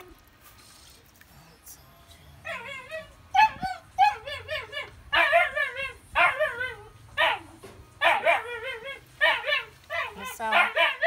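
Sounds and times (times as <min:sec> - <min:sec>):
dog whining and yelping: 0:02.4 - 0:11.0.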